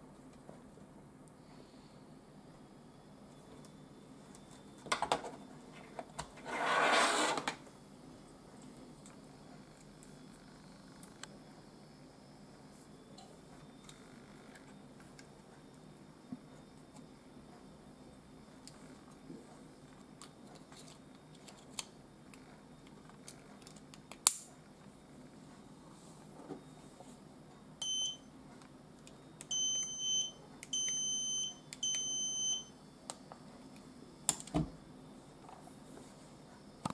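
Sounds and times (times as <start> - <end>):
key tester beeping: 27.8 - 28.3, 29.4 - 32.7.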